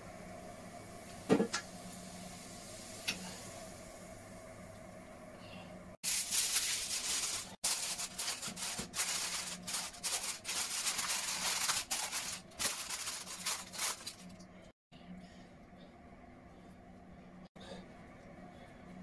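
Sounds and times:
aluminium foil crinkling: 6.0s - 14.5s.

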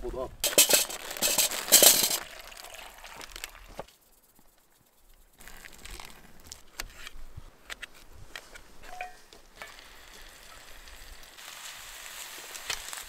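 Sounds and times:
water pouring into metal pot: 0.4s - 3.7s.

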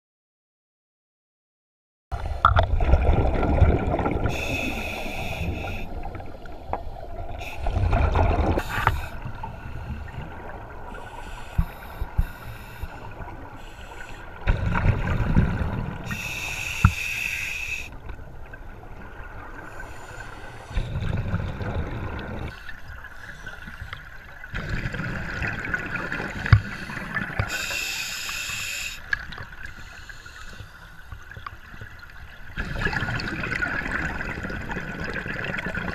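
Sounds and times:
underwater bubbles gurgling: 2.2s - 35.9s
regulator inhalation hiss: 4.3s - 6.0s, 8.6s - 10.0s, 10.9s - 14.3s, 16.1s - 18.0s, 26.8s - 29.0s.

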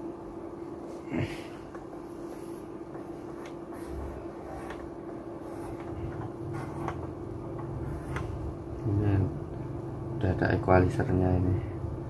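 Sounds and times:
faint hum: 0.0s - 12.0s
hands rubbing and tapping mixer: 1.6s - 8.4s.

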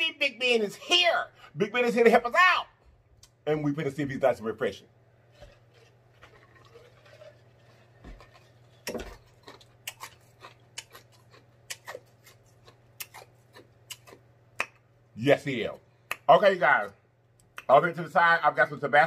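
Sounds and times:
faint steady hum: 0.0s - 19.0s
lip smacks and mouth clicks: 9.5s - 14.8s, 16.0s - 16.3s, 17.3s - 17.7s.

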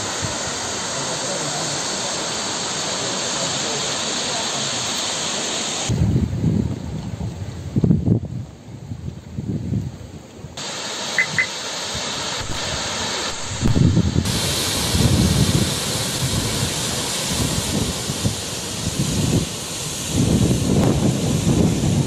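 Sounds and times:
rushing flood water: 0.0s - 6.0s, 10.6s - 22.0s
wind buffeting microphone: 5.9s - 10.6s, 11.2s - 22.0s.

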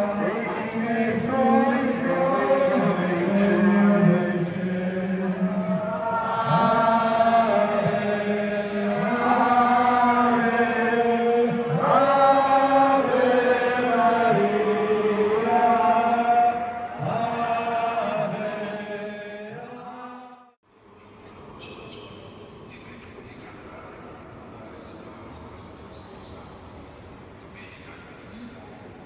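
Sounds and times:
crowd singing a hymn: 0.0s - 20.6s.

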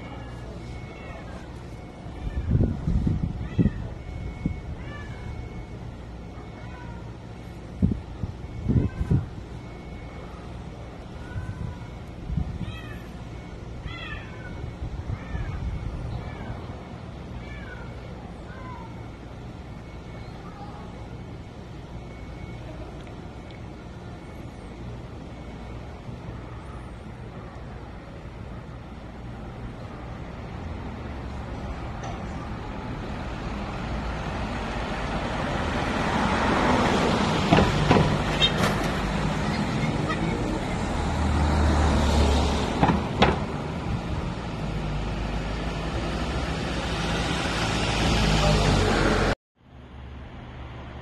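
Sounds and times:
cats meowing: 13.8s - 16.6s, 17.4s - 18.8s
vehicle engine and tyre noise: 21.2s - 51.0s
sharp knocks: 37.5s - 39.0s, 42.8s - 43.5s.

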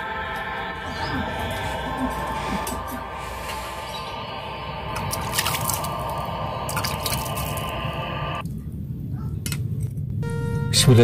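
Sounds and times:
sharp water drips: 2.4s - 8.4s
water trickling over rock: 4.8s - 8.2s.

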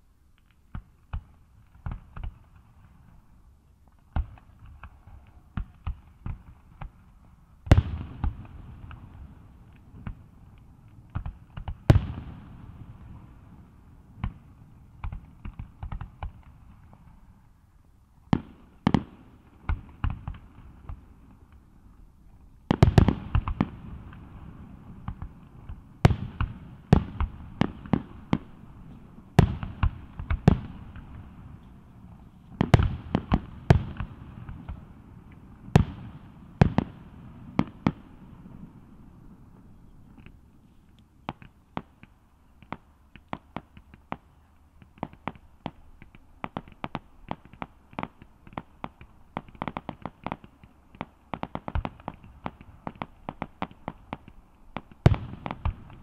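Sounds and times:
fireworks bangs with echo: 7.7s - 17.1s, 22.7s - 39.4s, 41.2s - 56.0s.

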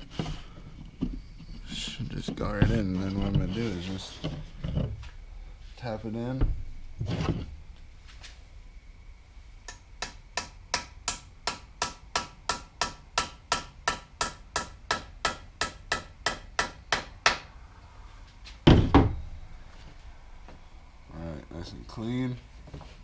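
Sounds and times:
hammer tapping metal: 9.7s - 17.4s
loud thump: 18.6s - 19.3s.

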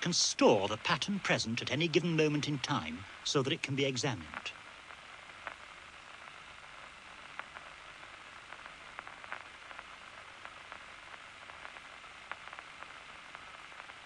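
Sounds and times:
loudspeaker hiss: 0.0s - 14.0s.

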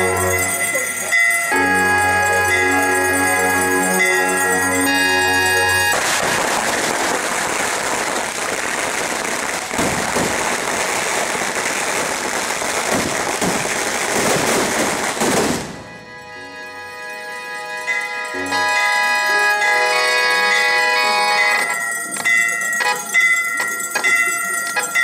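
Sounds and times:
bell-like music: 0.0s - 6.1s, 16.0s - 25.0s
firecrackers crackling: 5.3s - 16.0s.

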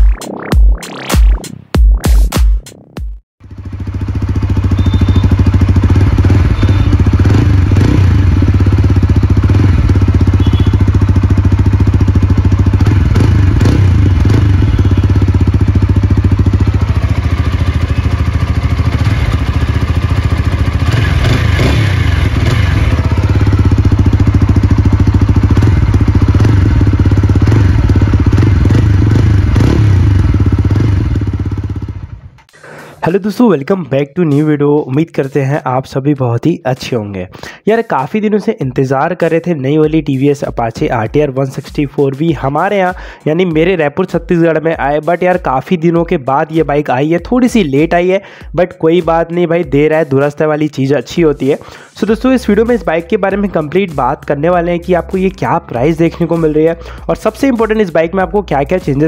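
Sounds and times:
motorcycle engine idling: 3.4s - 32.6s.

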